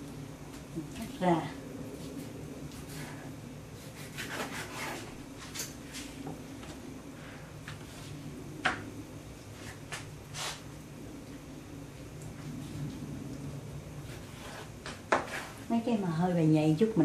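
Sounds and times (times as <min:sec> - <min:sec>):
knife cutting raw meat: 0:03.8 - 0:05.1.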